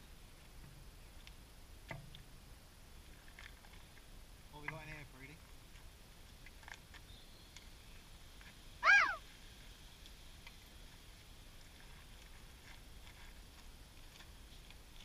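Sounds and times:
mewing animal call: 0:08.8 - 0:09.2.

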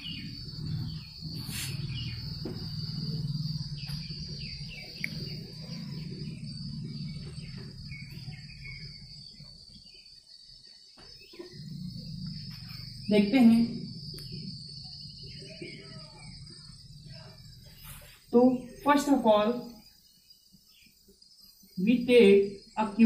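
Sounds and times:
high-pitched background whine: 0:00.0 - 0:23.0
duster rubbing on whiteboard: 0:01.4 - 0:02.0.

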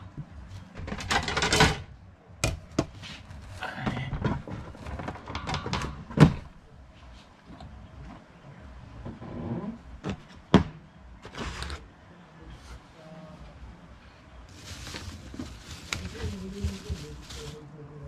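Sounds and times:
objects knocking and clattering: 0:00.1 - 0:03.0, 0:03.8 - 0:06.6
scraping rustle: 0:14.5 - 0:17.7.

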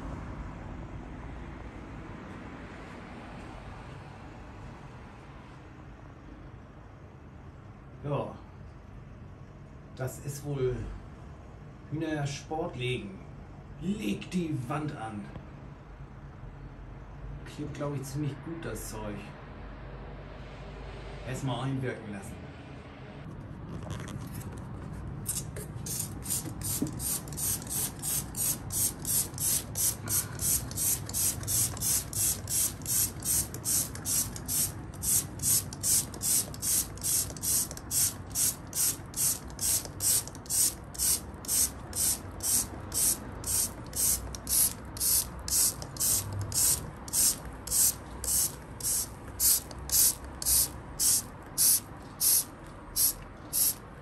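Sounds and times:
trigger spray bottle squirting: 0:25.3 - 0:53.8.

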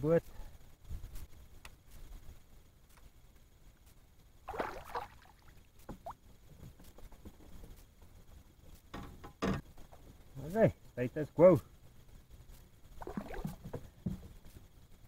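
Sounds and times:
small knocks and clicks in a kayak: 0:00.8 - 0:04.1, 0:05.7 - 0:10.3, 0:13.3 - 0:15.0.

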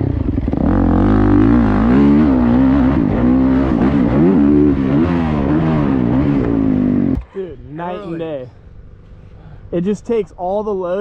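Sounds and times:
motorbike engine revving: 0:00.0 - 0:07.2.

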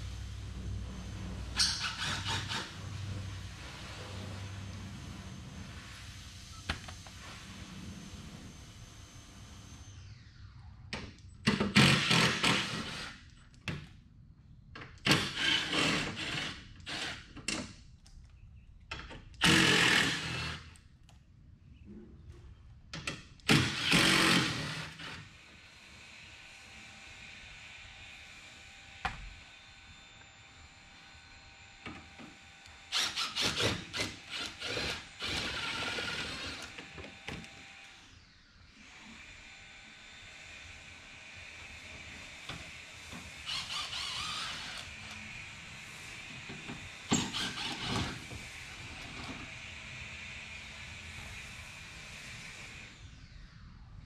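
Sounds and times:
cordless drill running in bursts: 0:01.6 - 0:02.8, 0:11.7 - 0:13.2, 0:15.1 - 0:17.3, 0:19.4 - 0:20.7, 0:23.5 - 0:26.2, 0:32.5 - 0:38.2, 0:38.8 - 0:53.0.

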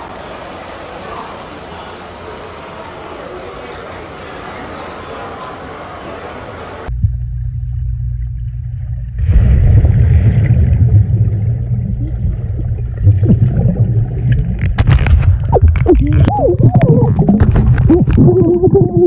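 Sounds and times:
steady hiss: 0:00.0 - 0:06.9
muffled underwater rumble: 0:06.9 - 0:19.0
bubbles underwater: 0:08.9 - 0:19.0.

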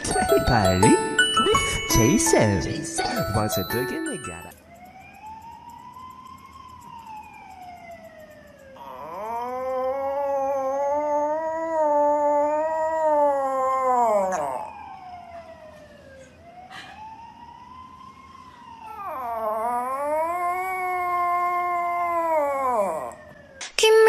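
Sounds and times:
dog howling: 0:08.8 - 0:15.0, 0:18.9 - 0:23.4.

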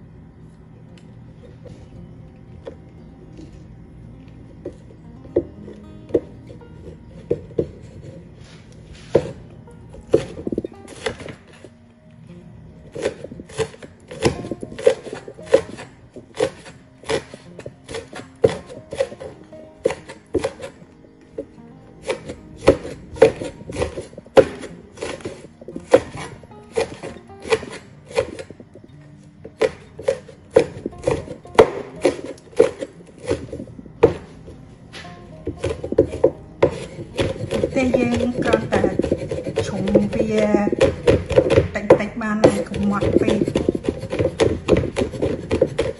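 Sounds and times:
background music: 0:00.0 - 0:45.9
cleaver chopping on wooden board: 0:12.9 - 0:20.8, 0:22.0 - 0:28.6, 0:29.5 - 0:34.3, 0:35.4 - 0:45.9.

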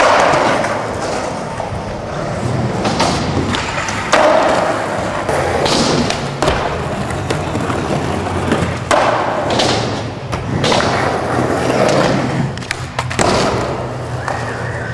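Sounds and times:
skateboard wheels rolling: 0:00.0 - 0:14.9.

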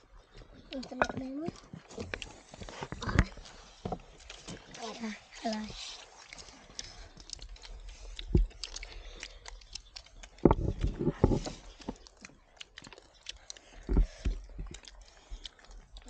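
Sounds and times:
dull thumps: 0:10.4 - 0:12.0.

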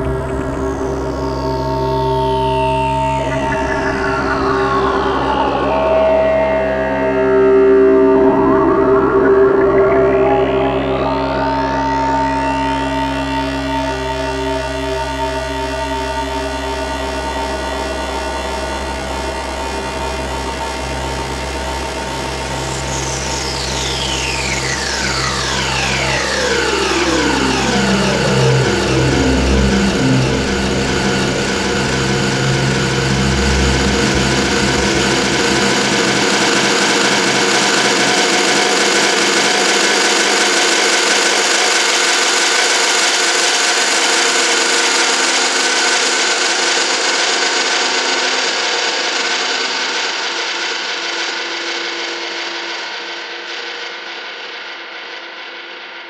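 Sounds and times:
falling pitch sweeps: 0:00.0 - 0:17.8, 0:22.2 - 0:40.4
modular synthesizer drone: 0:00.0 - 0:54.3.

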